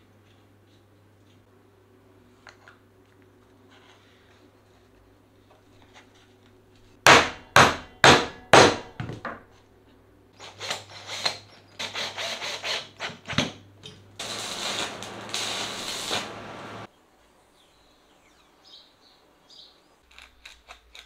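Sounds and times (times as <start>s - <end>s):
welding arc crackling hiss: 14.2s - 16.9s.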